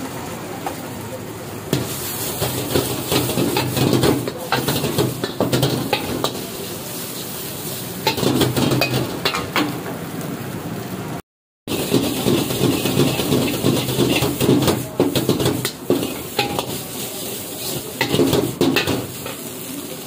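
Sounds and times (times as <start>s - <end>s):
food sizzling in oil: 0.1s - 9.9s, 11.7s - 20.0s
ladle clanking against wok: 1.8s - 10.0s, 11.7s - 19.6s.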